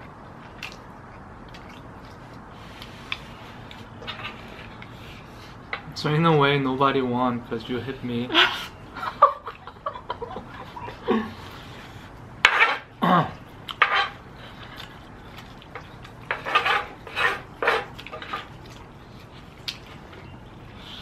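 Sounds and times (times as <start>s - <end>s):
utensils scraping griddle pan: 4.0s - 5.5s, 12.4s - 12.9s, 13.8s - 14.2s, 16.3s - 18.5s.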